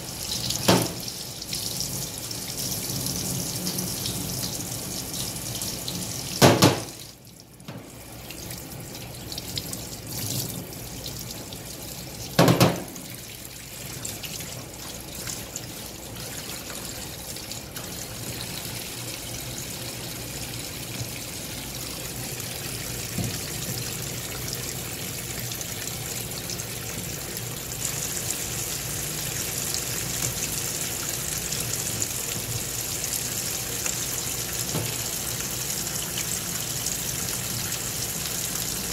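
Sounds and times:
water splashing into metal sink: 0.3s - 1.6s, 5.7s - 10.7s, 12.2s - 18.7s
loud knock: 6.4s - 6.9s, 12.4s - 12.9s.

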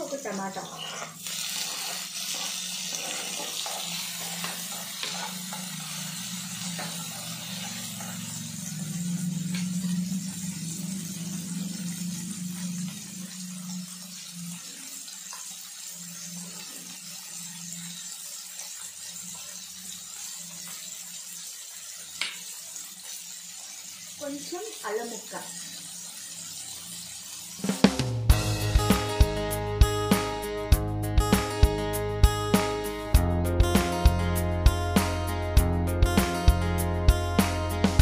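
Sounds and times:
vegetables sizzling in oil: 0.0s - 30.7s
low hum: 4.0s - 14.9s.

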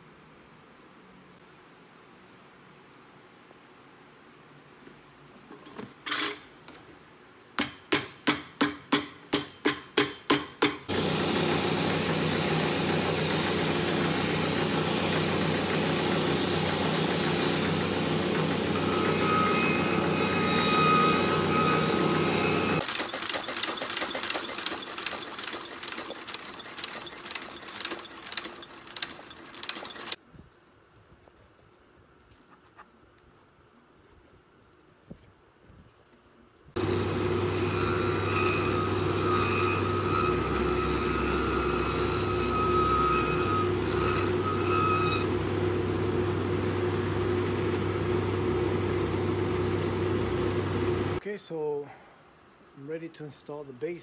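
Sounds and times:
finishing machine humming: 10.9s - 30.2s, 36.8s - 51.2s.

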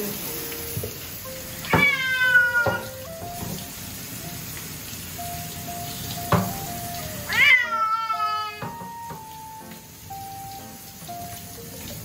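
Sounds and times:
hand shower spraying water: 0.0s - 12.0s
cat yowling: 1.6s - 3.1s, 7.2s - 8.8s.

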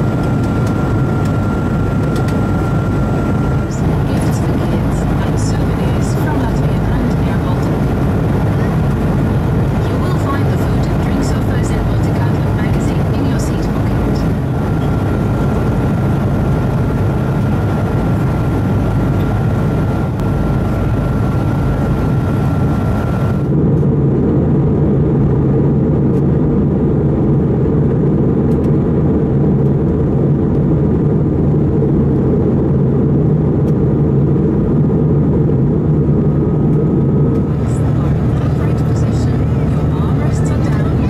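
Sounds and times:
faint steady whine: 0.0s - 23.8s, 35.4s - 41.0s
jet engine drone: 0.0s - 41.0s.

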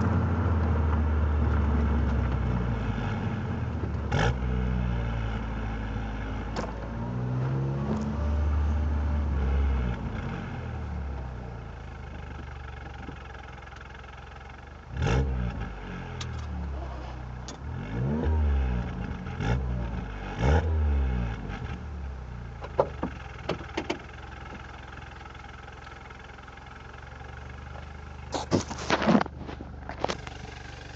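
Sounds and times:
car engine idling and revving: 0.0s - 30.9s
exhaust crackles: 22.6s - 30.9s.

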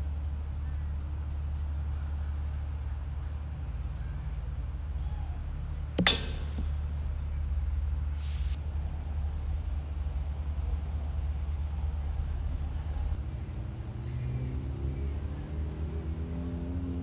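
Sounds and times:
steady low rumble: 0.0s - 15.5s
baseball hitting chain-link fence: 6.0s - 7.3s.

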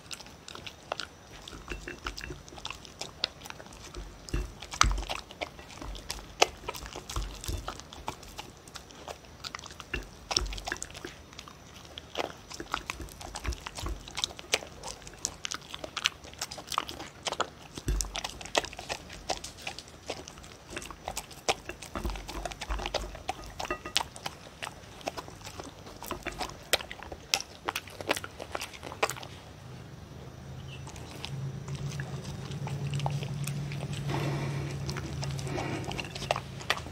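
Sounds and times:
dog chewing and crunching kibble: 0.0s - 36.9s.

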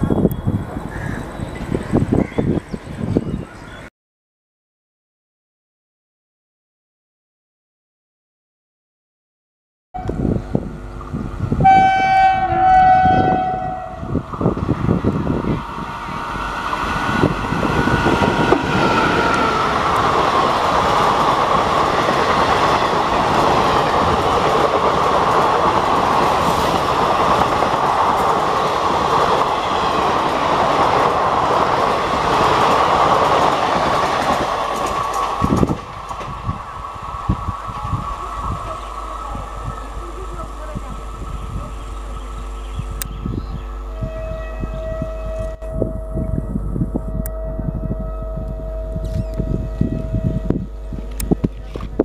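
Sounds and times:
train horn blasts: 10.0s - 10.4s, 11.6s - 14.6s, 43.8s - 51.3s
wheels clattering over rail joints: 18.2s - 36.5s.

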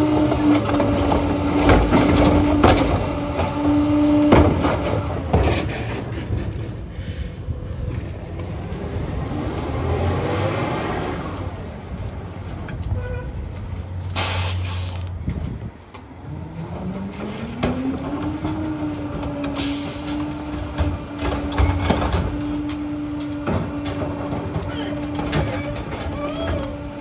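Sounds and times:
garbage truck engine: 0.0s - 27.0s
bins knocking at hopper: 0.2s - 6.1s
air hiss: 14.1s - 15.0s.

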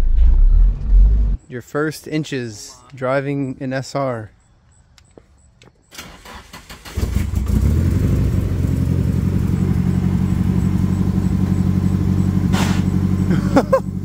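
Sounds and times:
car engine cranking and idling: 5.9s - 14.0s.

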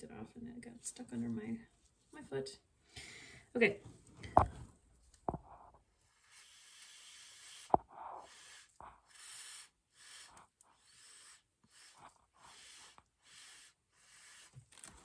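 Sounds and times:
breath puffs through straw: 6.1s - 14.7s.

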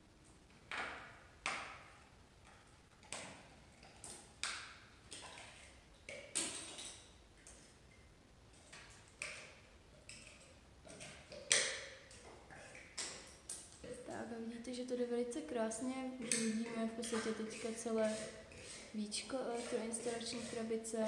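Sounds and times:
hand tool chipping plaster: 16.2s - 21.0s.

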